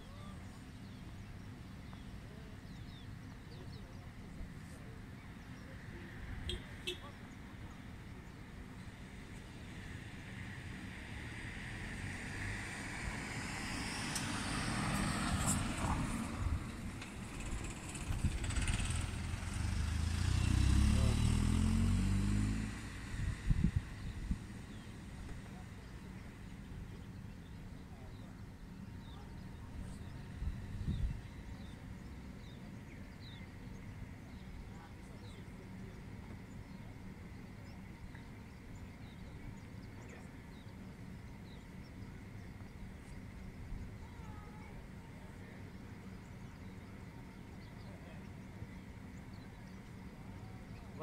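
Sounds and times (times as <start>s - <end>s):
small birds chirping: 0.0s - 11.1s, 13.4s - 51.0s
low outdoor rumble: 0.0s - 51.0s
vehicle engine passing by: 9.2s - 27.6s.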